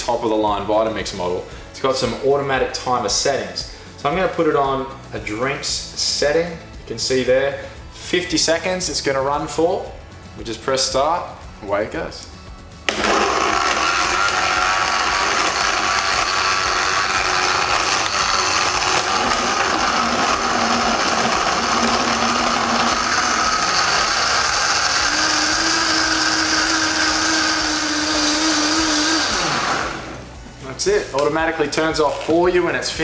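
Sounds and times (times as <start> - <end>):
blender running at high speed: 12.9 - 30.3.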